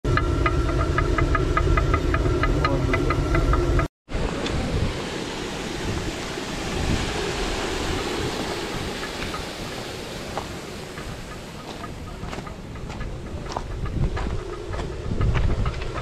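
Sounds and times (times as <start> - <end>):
stone mill rumbling and clicking: 0.1 - 3.9, 10.4 - 16.0
stream water rushing: 4.1 - 13.6.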